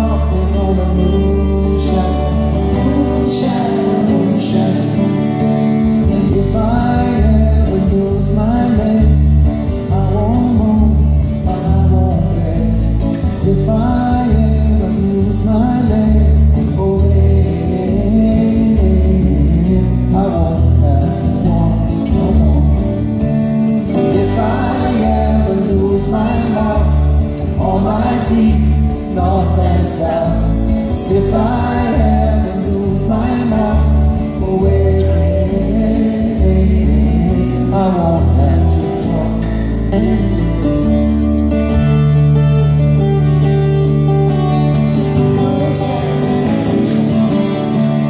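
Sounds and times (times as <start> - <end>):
man singing: 0.0 - 41.1, 45.0 - 48.0
strummed acoustic guitar: 0.0 - 48.0.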